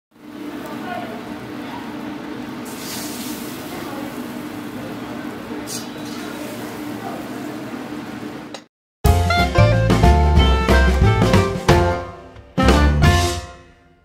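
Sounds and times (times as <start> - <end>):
brief hisses: 2.7 - 3.6, 5.7 - 6.7.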